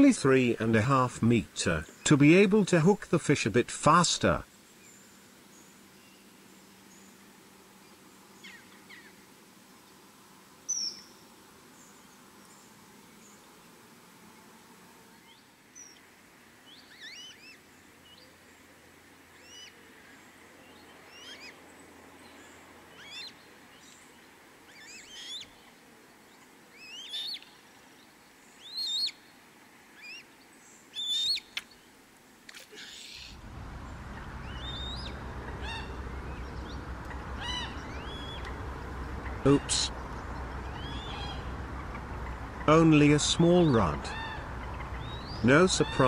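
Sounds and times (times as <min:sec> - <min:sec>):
bird calling: 0:32.7 - 0:46.0
low background rumble: 0:33.3 - 0:46.0.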